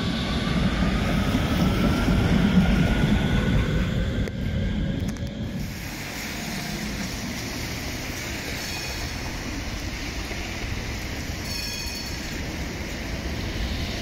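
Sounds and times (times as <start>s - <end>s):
tram wheels rumbling on rails: 0.0s - 14.0s
faint wheel squeals: 8.5s - 9.4s.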